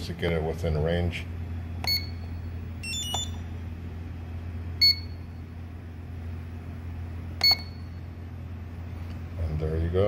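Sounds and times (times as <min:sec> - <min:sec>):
steady low hum: 0:00.0 - 0:10.0
short electronic beeps: 0:01.8 - 0:03.4, 0:04.8 - 0:05.4, 0:07.4 - 0:08.0.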